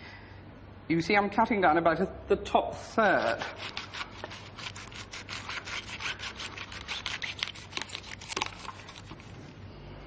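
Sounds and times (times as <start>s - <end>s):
knife cutting tough leaves: 3.1s - 9.3s.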